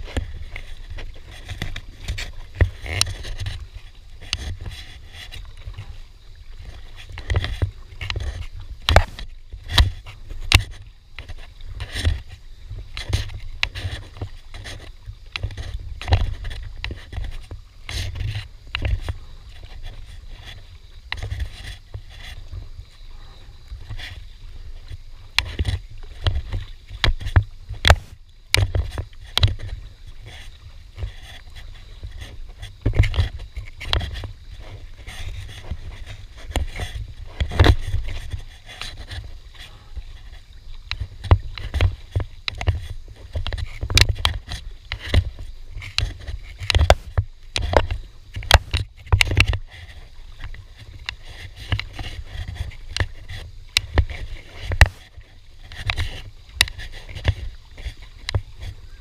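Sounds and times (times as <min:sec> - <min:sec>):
paddle splashing in water: 0:00.0 - 0:59.0
sharp clicks and knocks: 0:27.0 - 0:29.7, 0:43.4 - 0:49.6.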